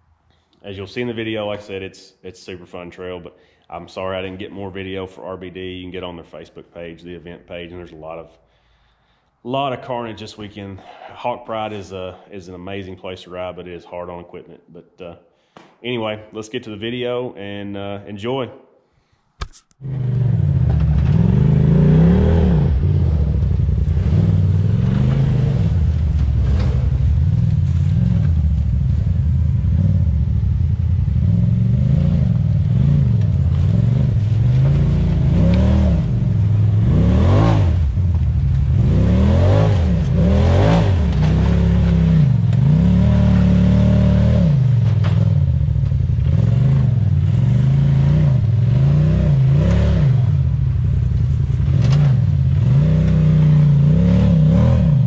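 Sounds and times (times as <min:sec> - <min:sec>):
utility vehicle engine revving: 0:19.8 - 0:55.0.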